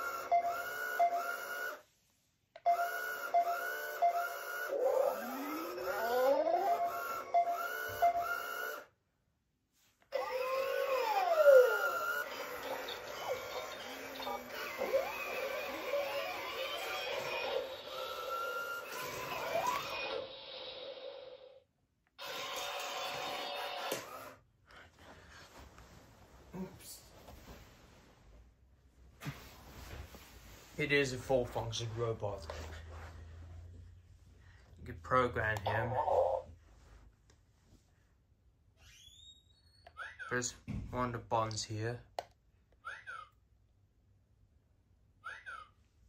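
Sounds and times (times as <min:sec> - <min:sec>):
robot toy electronic sound effects: 0:02.7 - 0:08.8, 0:10.2 - 0:21.4
mechanical hum: 0:02.8 - 0:09.0, 0:10.1 - 0:34.5.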